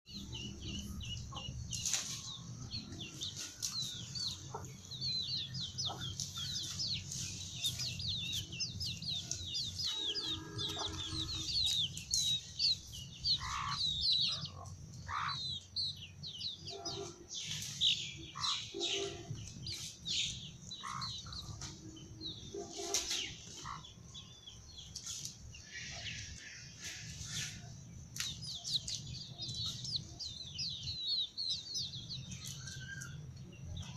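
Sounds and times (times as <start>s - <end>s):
chicks peeping: 0.1s - 33.9s
hen clucking: 0.2s - 17.6s, 20.5s - 21.9s.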